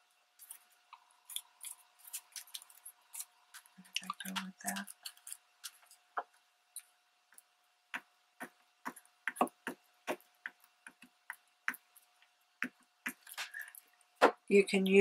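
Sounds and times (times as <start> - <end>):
paper strips crinkling: 0.4 - 6.1.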